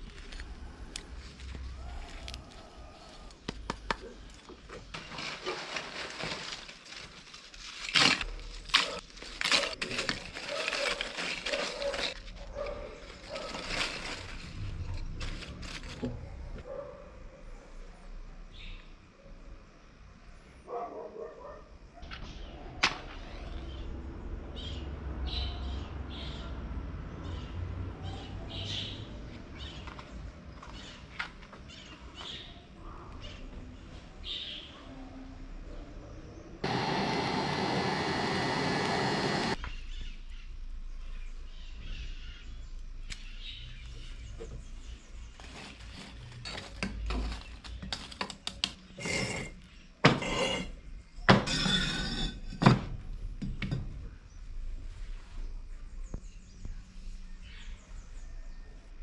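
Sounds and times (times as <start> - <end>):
fire rushing in forge: 36.6 - 39.6.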